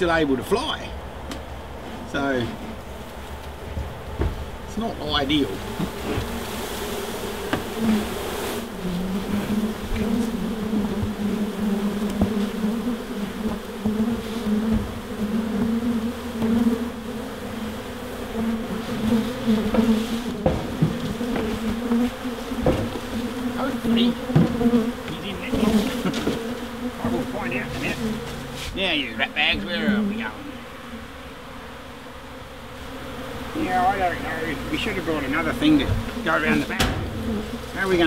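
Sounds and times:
bees buzzing: 0:00.0 - 0:38.0
light knocks: 0:03.7 - 0:04.4, 0:07.5 - 0:08.0, 0:36.8 - 0:37.4.

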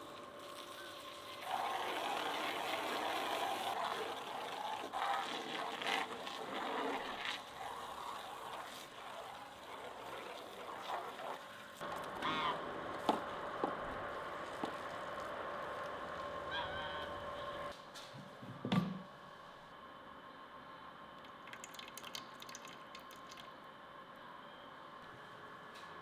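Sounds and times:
hose water splashing into basin: 0:00.4 - 0:11.4, 0:21.2 - 0:23.5.

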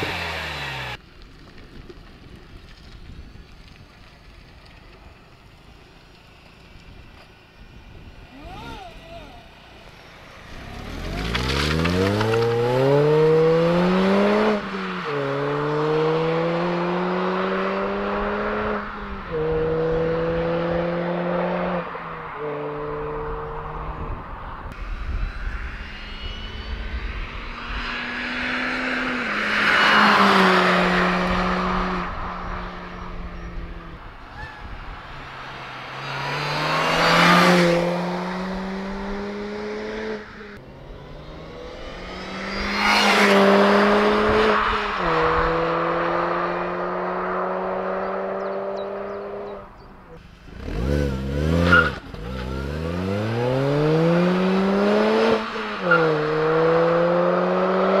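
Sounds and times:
car engine at high revs: 0:00.0 - 0:01.0, 0:10.0 - 0:34.2, 0:35.0 - 0:58.0
supercharger whine: 0:24.2 - 0:28.2
engine revving in blips: 0:50.5 - 0:58.0.

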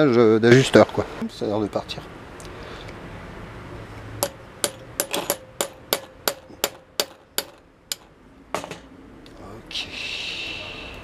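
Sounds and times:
hammer tapping metal punch: 0:04.2 - 0:08.9.

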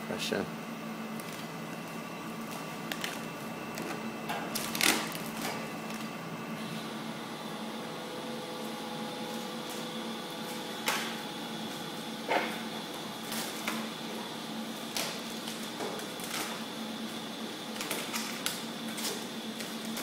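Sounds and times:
steady hum: 0:00.0 - 0:20.0
plastic film peeling: 0:01.1 - 0:06.1.

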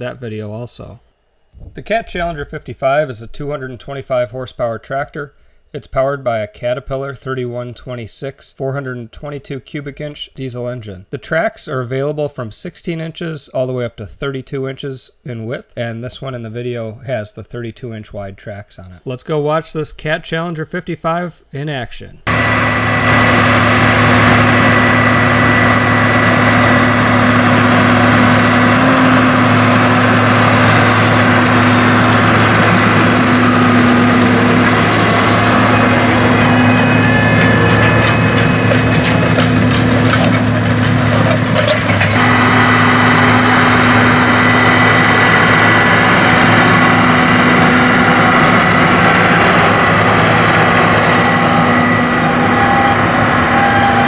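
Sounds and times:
diesel tractor engine under load: 0:22.3 - 0:54.0.

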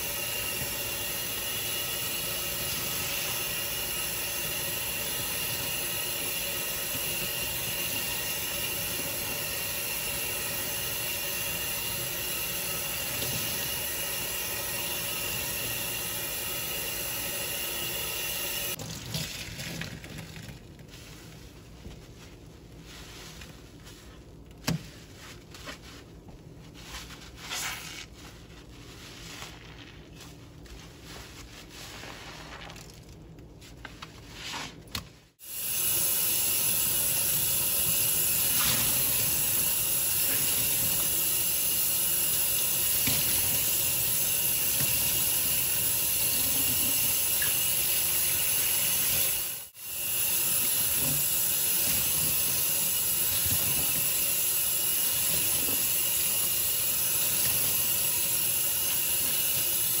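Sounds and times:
sponge squishing: 0:18.3 - 0:35.3
faucet running onto sponge: 0:35.4 - 1:00.0.

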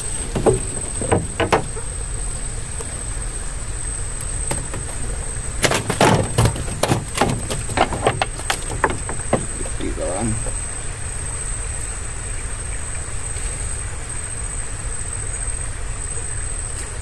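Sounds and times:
knocks on wooden boat deck: 0:00.1 - 0:01.9, 0:04.5 - 0:09.8.

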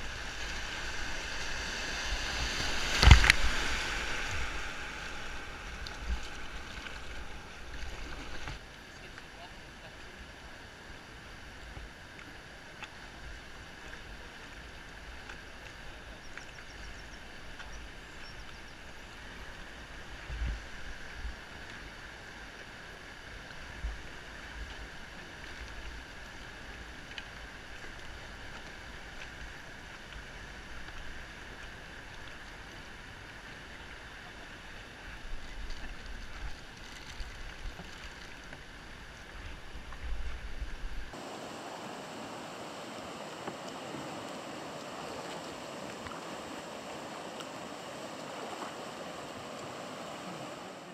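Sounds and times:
white water rushing: 0:00.0 - 0:12.5, 0:41.1 - 0:50.9.

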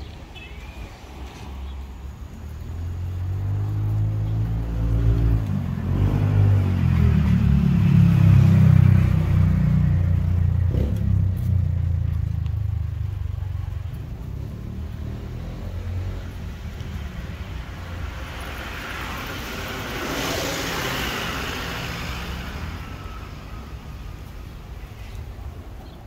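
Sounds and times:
vehicle engine revving: 0:02.6 - 0:12.8, 0:14.1 - 0:16.9.

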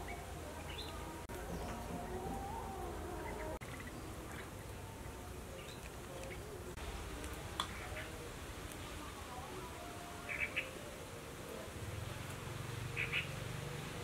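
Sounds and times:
birds calling: 0:00.0 - 0:06.8, 0:10.2 - 0:10.9, 0:12.2 - 0:13.7.

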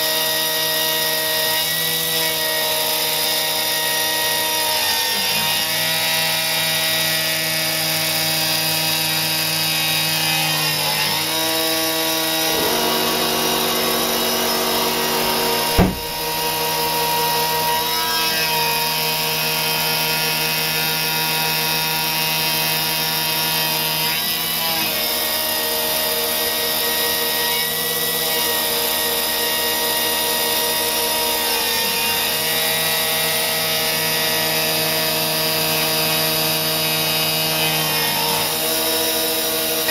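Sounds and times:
milling machine whine: 0:09.8 - 0:19.8
sharp knock: 0:15.8 - 0:16.4.

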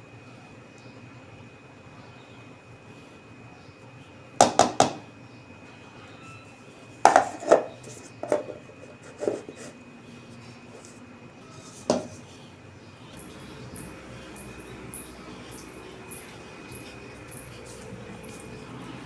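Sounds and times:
spoon knocking against casserole: 0:07.1 - 0:08.6.

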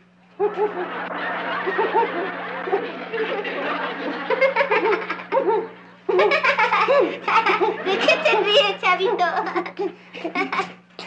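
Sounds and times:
steady low hum: 0:00.0 - 0:11.0
person laughing: 0:00.4 - 0:10.8
studio audience laughter: 0:00.4 - 0:10.8.

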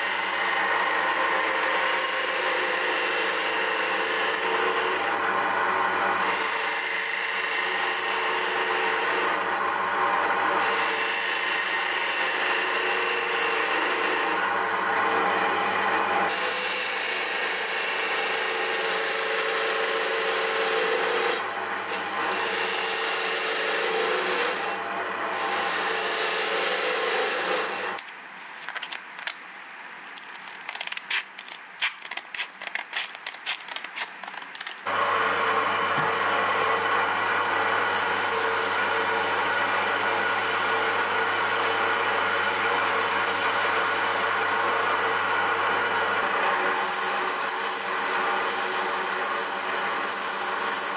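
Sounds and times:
wood lathe running: 0:00.0 - 0:28.0, 0:34.8 - 0:50.9
turning tool scraping wood: 0:16.3 - 0:24.7, 0:25.3 - 0:28.9, 0:37.9 - 0:50.9
sandpaper rubbing spinning wood: 0:37.9 - 0:50.9.

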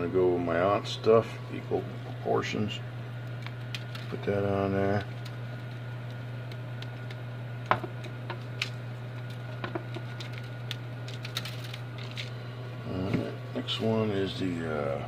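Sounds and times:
low hum: 0:00.0 - 0:15.0
seasoning ticking on foil pan: 0:03.3 - 0:12.3.

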